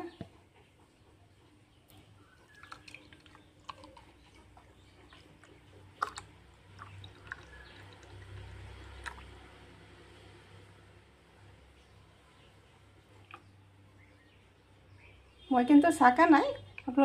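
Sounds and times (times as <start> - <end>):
liquid trickling into a glass: 2.5 - 4.1, 6.0 - 9.4.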